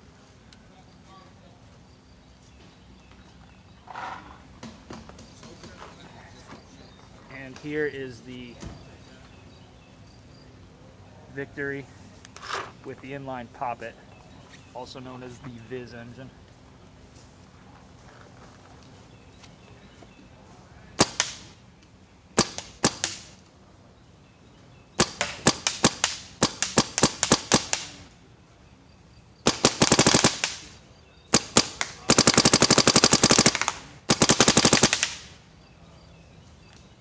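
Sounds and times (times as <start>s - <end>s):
paintball marker firing: 21.0s - 21.6s, 22.4s - 23.4s, 25.0s - 28.0s, 29.4s - 35.4s.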